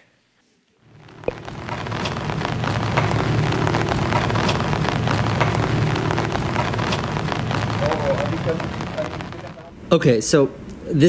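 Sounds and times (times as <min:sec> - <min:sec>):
heavy rain: 0:00.9 - 0:09.8
low rumble: 0:00.9 - 0:09.8.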